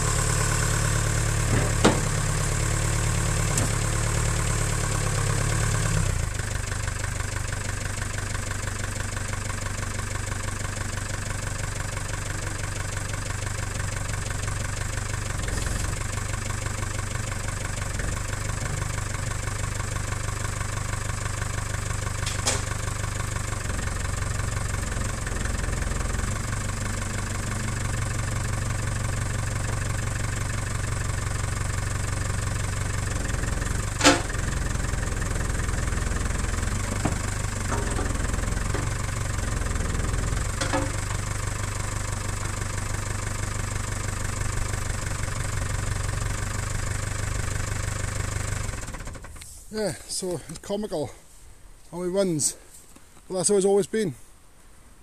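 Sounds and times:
diesel engine idling: 0.0 - 52.8
sharp metallic clanks: 34.0 - 34.4, 40.6 - 41.1.

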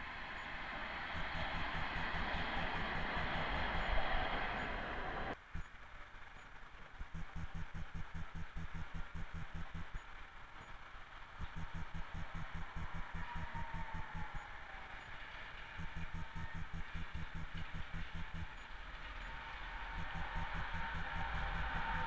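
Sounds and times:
tram passing close by: 0.0 - 5.4
distant city traffic: 0.0 - 5.7, 11.4 - 22.0
tram wheels squealing: 0.2 - 5.3
fast low thumping: 7.0 - 10.0, 11.4 - 14.3, 15.8 - 18.6, 20.0 - 22.0.

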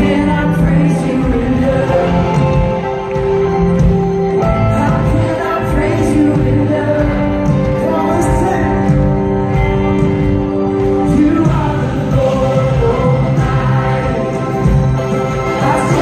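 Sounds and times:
person singing lead vocals: 0.0 - 3.1, 4.4 - 16.0
guitars: 0.0 - 16.0
worship band playing: 0.0 - 16.0.

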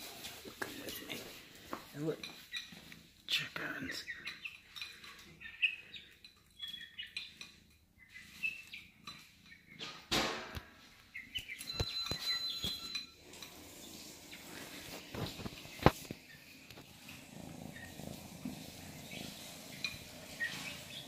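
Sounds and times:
chickens chirping: 3.9 - 10.1, 10.8 - 21.0
sharp thump: 10.1 - 10.6.

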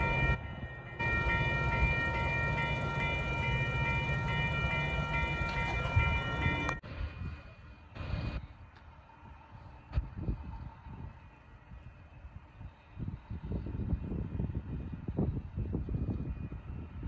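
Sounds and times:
railroad crossing bell ringing: 0.0 - 8.1.

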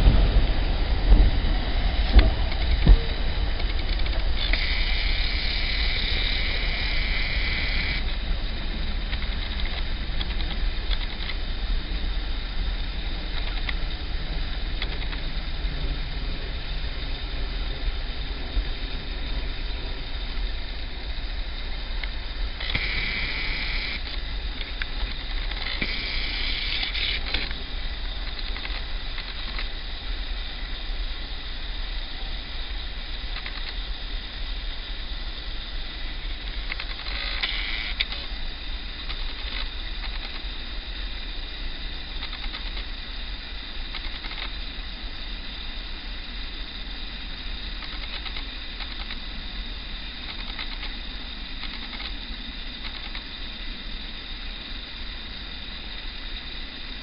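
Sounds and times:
diesel locomotive engine rumbling: 0.0 - 44.0
high hiss: 0.0 - 57.0.

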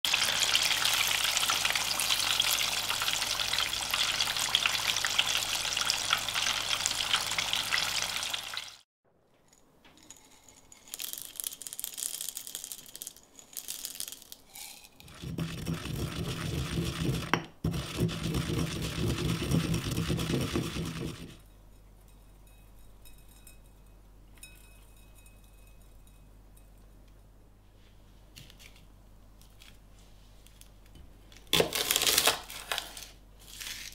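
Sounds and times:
chicken deep-frying in oil: 0.1 - 8.8, 15.0 - 21.4.

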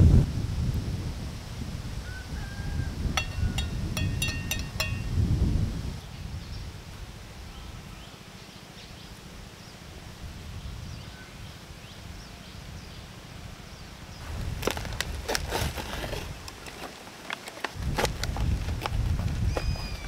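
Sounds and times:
tableware clinking: 3.2 - 5.2.

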